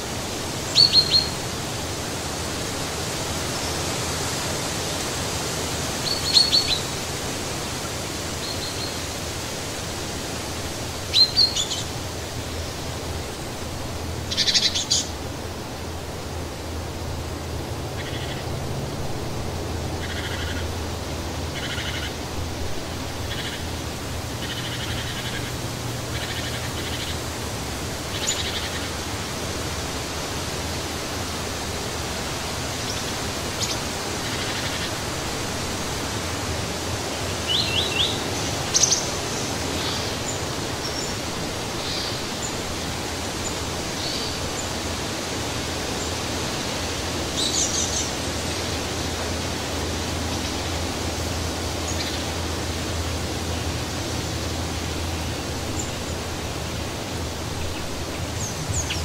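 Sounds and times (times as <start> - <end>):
wind through trees: 0.0 - 59.0
small birds chirping: 0.6 - 1.4, 6.0 - 7.0, 11.1 - 12.0, 14.2 - 15.2, 28.0 - 29.0, 36.7 - 42.7, 51.6 - 52.4.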